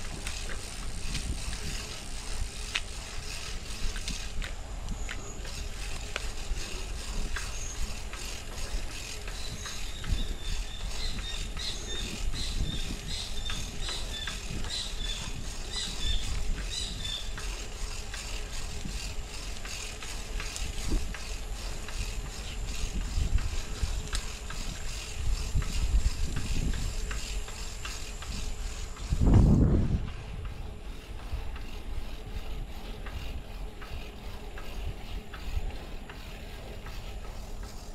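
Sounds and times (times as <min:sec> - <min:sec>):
bicycle rattles and clicks: 0:00.0 - 0:37.9
wind rumbling on microphone: 0:00.0 - 0:37.9.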